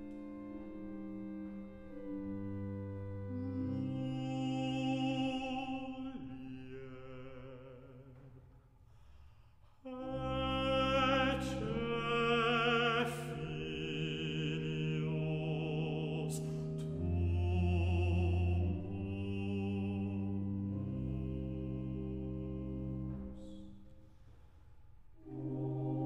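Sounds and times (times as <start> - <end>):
organ playing: 0.0 - 6.8, 9.9 - 23.6, 25.2 - 26.0
operatic solo voice singing: 3.6 - 8.3, 9.9 - 23.4.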